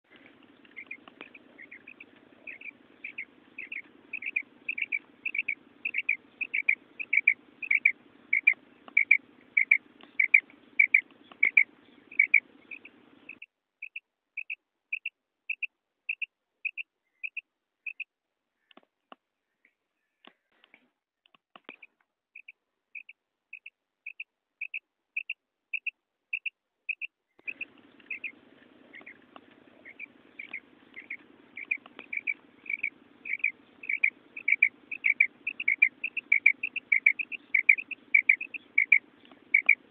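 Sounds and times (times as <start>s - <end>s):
low hum: 0.1s - 13.4s
quail call: 0.1s - 18.0s, 22.4s - 39.9s.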